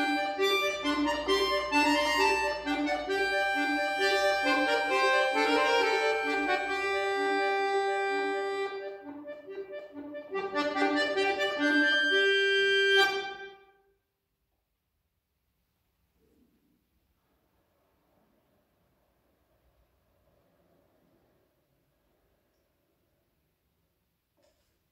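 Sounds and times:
accordion playing chords and melody: 0.0 - 13.7.

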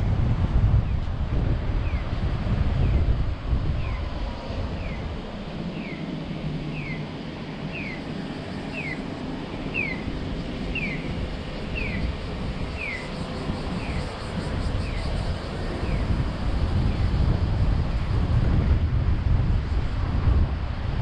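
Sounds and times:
crossing signal chirping: 8.7 - 14.0.

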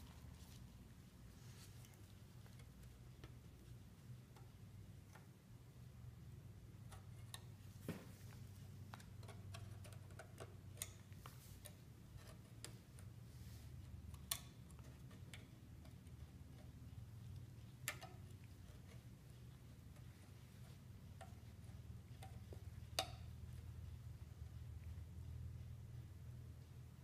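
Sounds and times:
low steady hum: 0.0 - 27.0
small metal clicks and ticks: 6.6 - 7.8, 8.4 - 13.2, 13.8 - 23.7.

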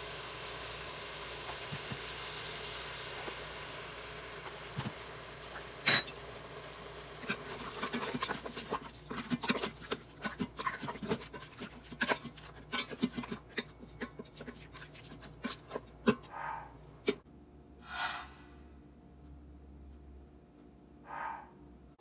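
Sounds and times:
wooden spatula scraping a metal pot: 7.2 - 16.4.

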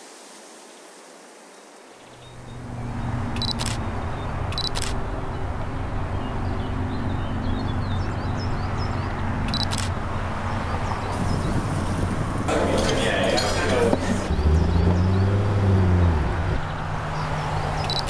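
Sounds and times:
camera shutter double clicks: 3.4 - 3.8, 4.5 - 5.0, 9.5 - 10.0.

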